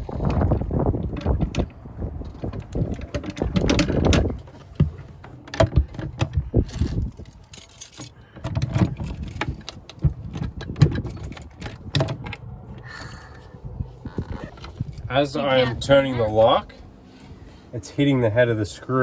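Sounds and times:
metal door lock clicking and rattling: 0:00.3 - 0:04.6, 0:05.2 - 0:12.6.

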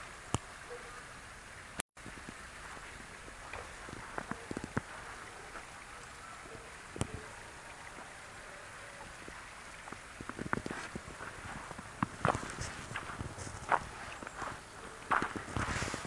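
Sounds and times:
creek flowing: 0:00.0 - 0:16.0
footsteps crunching in snow: 0:10.3 - 0:16.0.

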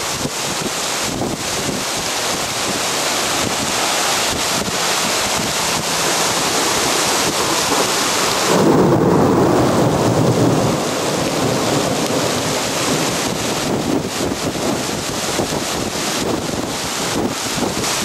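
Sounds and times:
heavy rain pouring: 0:00.0 - 0:18.0
deep thunder rumble: 0:05.7 - 0:17.3.

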